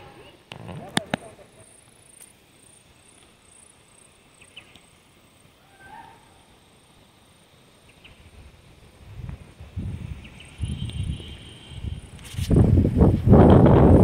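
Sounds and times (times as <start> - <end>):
outdoor bush ambience: 0.0 - 14.0
distant animal calls: 5.5 - 6.6.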